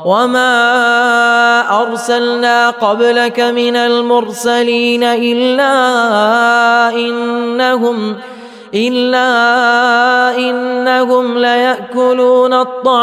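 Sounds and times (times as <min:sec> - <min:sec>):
man chanting melodically: 0:00.0 - 0:13.0
short breath: 0:08.2 - 0:08.8.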